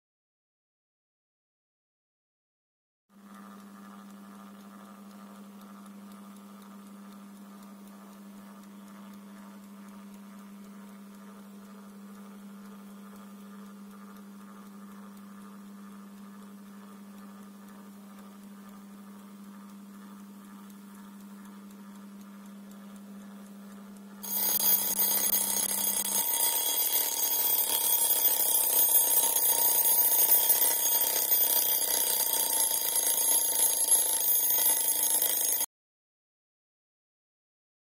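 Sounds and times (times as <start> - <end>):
alarm clock ringing: 24.2 - 35.7.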